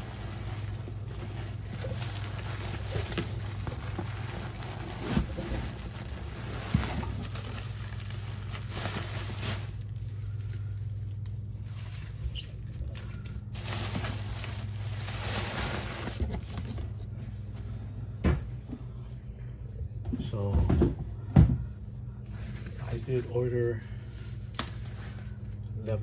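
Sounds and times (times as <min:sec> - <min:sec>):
packing and cardboard rustling: 0:00.0 - 0:17.6
steady low hum: 0:00.0 - 0:26.0.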